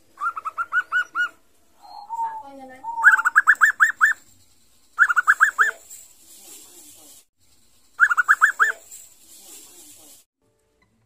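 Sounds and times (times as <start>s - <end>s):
dove singing: 0.2s - 4.3s, 5.0s - 5.9s, 8.0s - 9.0s.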